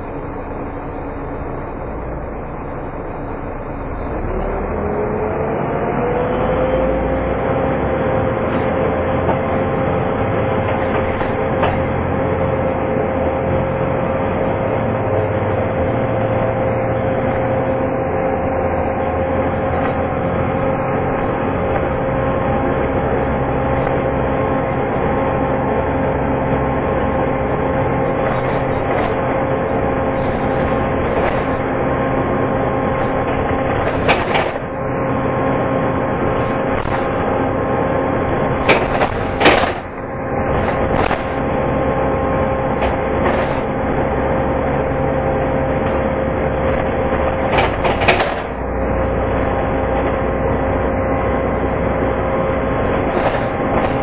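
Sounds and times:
bus engine with fan whine: 0.0 - 54.0
knocks and rattles: 38.6 - 41.4.

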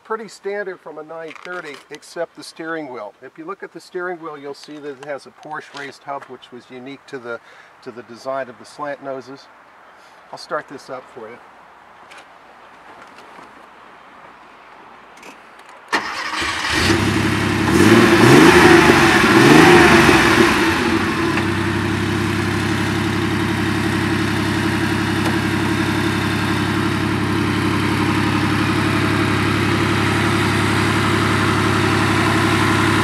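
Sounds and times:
car engine starting and idling: 15.9 - 33.0.

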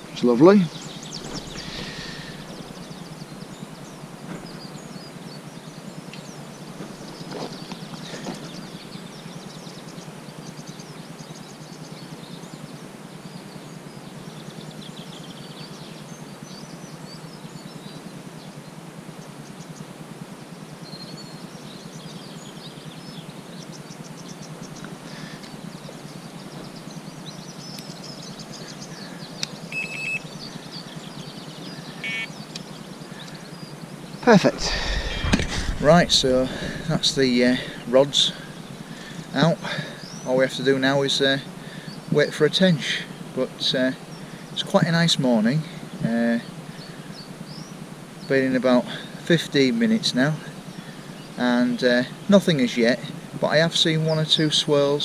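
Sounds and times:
small birds chirping: 0.0 - 55.0
steady low background noise: 0.0 - 55.0
short high beeps: 29.7 - 30.2.

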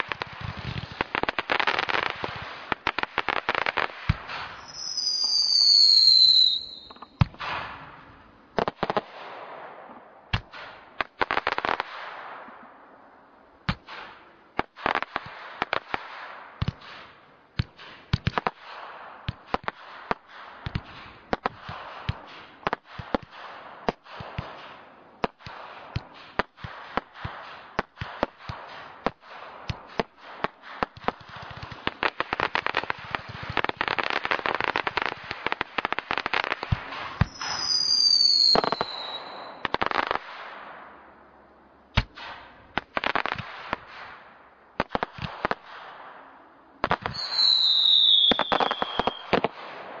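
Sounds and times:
firework bangs and crackling: 0.0 - 41.3, 41.9 - 50.0
falling firework whistles: 3.4 - 7.9, 36.8 - 40.2, 46.8 - 49.5.

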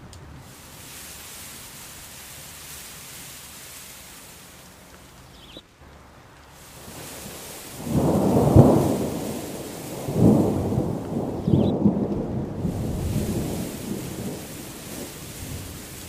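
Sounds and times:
rain hiss: 0.0 - 16.0
rolling thunder rumble: 6.6 - 16.0.

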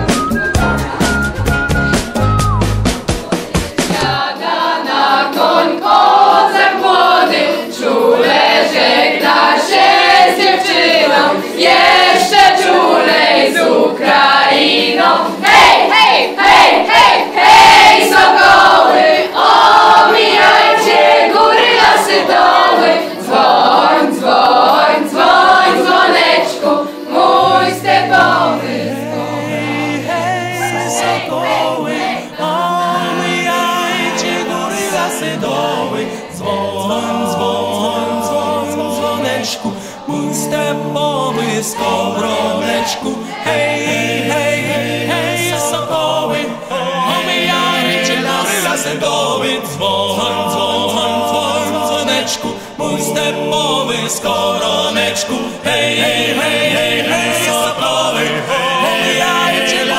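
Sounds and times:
choir singing: 0.0 - 59.9
steady low note: 27.3 - 31.4.

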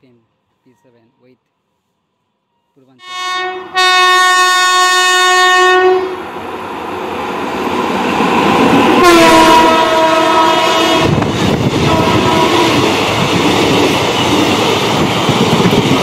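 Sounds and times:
train horn blast: 3.0 - 6.2, 9.0 - 11.2, 11.8 - 13.0
approaching train running noise: 3.6 - 16.0
train coaches rumbling past: 5.3 - 16.0.

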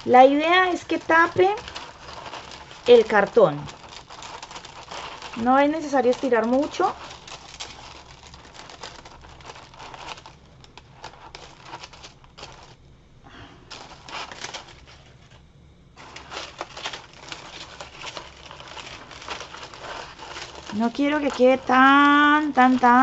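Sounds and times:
crepe paper crinkling: 0.0 - 23.0.

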